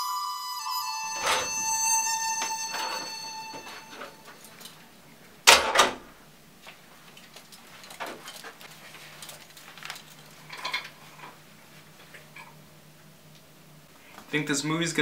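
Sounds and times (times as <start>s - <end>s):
held music notes: 0.0s - 5.4s
glass office door shutting: 1.0s - 4.3s, 5.5s - 6.1s.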